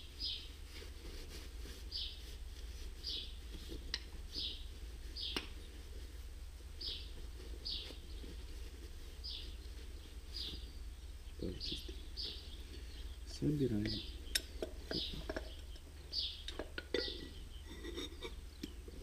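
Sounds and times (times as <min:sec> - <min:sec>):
small bird chirping: 0:00.0 - 0:00.9, 0:01.6 - 0:06.2, 0:06.8 - 0:19.0
low background rumble: 0:00.0 - 0:19.0.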